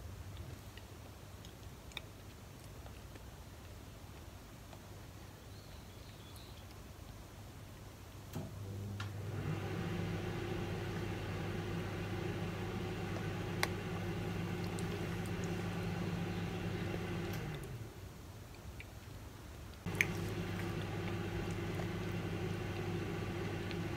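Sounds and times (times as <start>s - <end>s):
electric motor hum: 8.6s - 18.0s, 19.9s - 23.9s.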